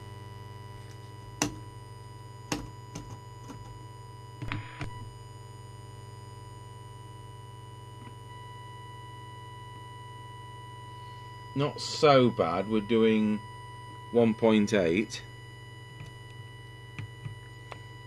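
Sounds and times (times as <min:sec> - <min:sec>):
low mains hum: 0:00.0 - 0:18.0
steady oscillator test tone: 0:08.3 - 0:18.0.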